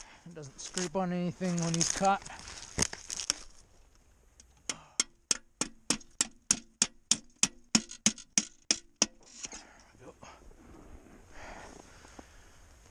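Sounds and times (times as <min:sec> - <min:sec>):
hand tool cutting branches: 0:01.5 - 0:03.6.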